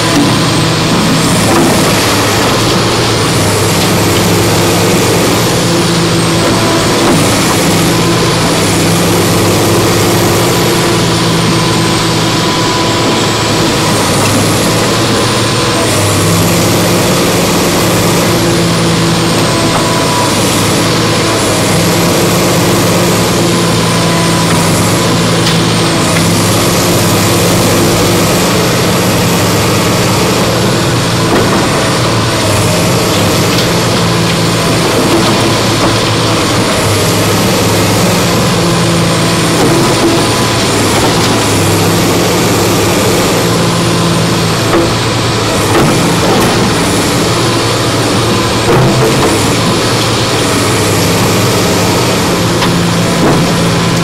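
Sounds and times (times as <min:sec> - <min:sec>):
excavator diesel engine: 0:00.0 - 0:54.0.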